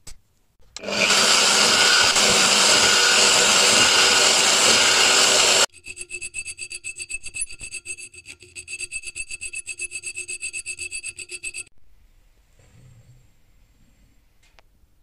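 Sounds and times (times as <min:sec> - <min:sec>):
hand file rasping on metal: 0:01.1 - 0:11.7.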